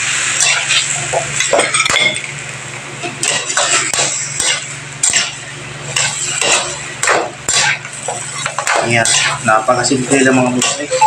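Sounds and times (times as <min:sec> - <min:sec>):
steady low hum: 0:00.0 - 0:11.0
metal spatula scraping a wok: 0:00.4 - 0:01.0, 0:03.2 - 0:06.9, 0:07.5 - 0:11.0.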